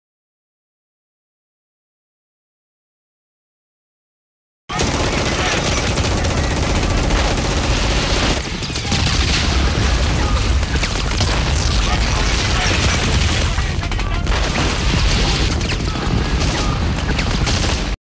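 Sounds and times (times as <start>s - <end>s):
booming explosions: 4.7s - 18.0s
crackling gunfire: 4.7s - 18.0s.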